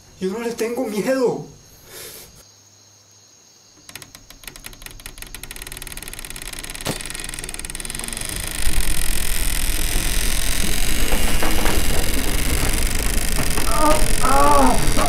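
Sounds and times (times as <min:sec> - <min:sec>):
wooden chair rattling on floor: 0:03.8 - 0:15.0
deep rumble: 0:07.5 - 0:15.0.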